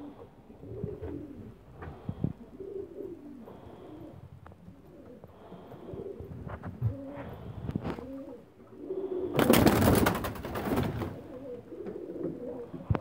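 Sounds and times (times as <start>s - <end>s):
pigeons cooing: 0.0s - 13.0s
wings flapping: 9.3s - 11.4s.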